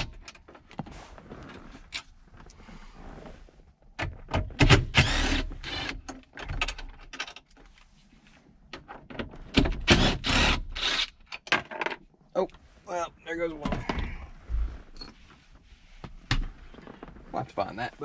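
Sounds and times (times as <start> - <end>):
wrench clicks and scrapes: 9.9 - 11.4.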